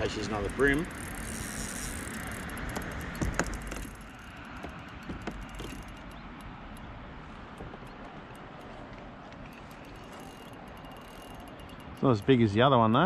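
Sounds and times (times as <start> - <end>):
fishing reel clicking: 0.0 - 6.9, 9.4 - 13.0
sharp knocks: 2.7 - 6.1.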